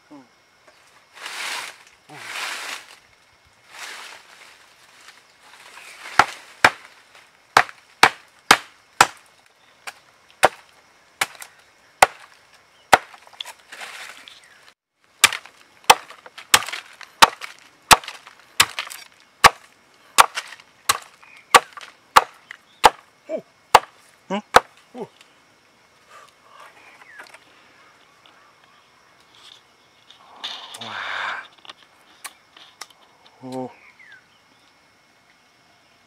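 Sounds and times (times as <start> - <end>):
wood chopping strikes: 6.1 - 6.9, 7.6 - 13.6, 15.2 - 23.0, 23.7 - 24.8.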